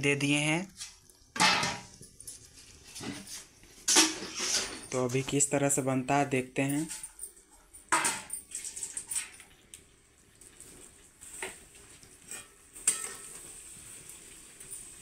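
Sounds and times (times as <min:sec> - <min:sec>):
curry sizzling in pan: 0:08.5 - 0:15.0
steel utensils clinking: 0:12.3 - 0:13.3.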